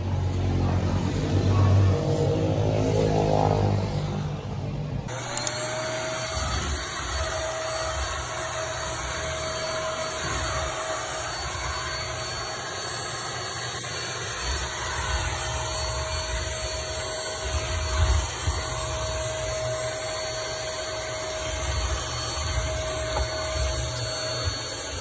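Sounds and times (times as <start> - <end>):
vacuum cleaner whining: 0.0 - 4.5, 5.1 - 25.0
floor head scraping over rug: 5.1 - 25.0.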